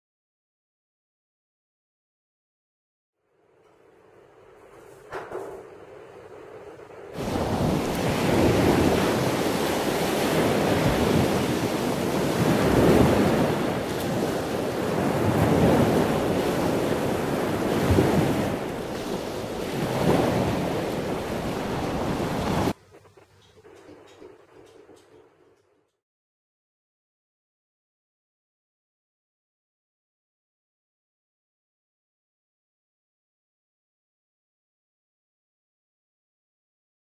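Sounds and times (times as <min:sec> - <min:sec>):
waves rushing: 0:06.4 - 0:22.8.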